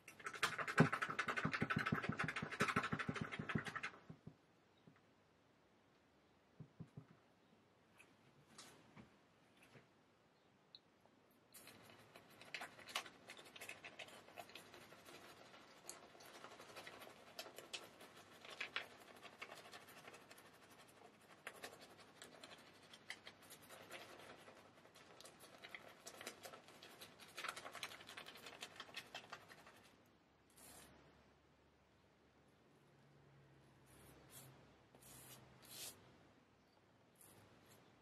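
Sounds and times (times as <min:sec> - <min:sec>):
shaving brush scrubbing lather: 0:13.5 - 0:29.8.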